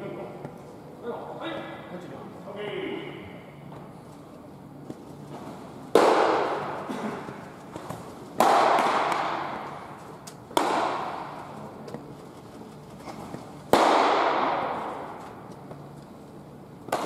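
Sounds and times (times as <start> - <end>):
baseballs popping into leather mitts: 5.9 - 12.0.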